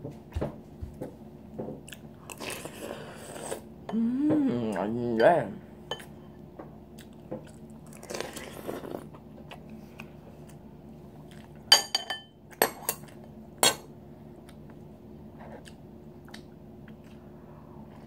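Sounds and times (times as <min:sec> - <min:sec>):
faint steady hum: 0:00.0 - 0:18.0
chewing: 0:11.2 - 0:11.6, 0:15.4 - 0:17.3.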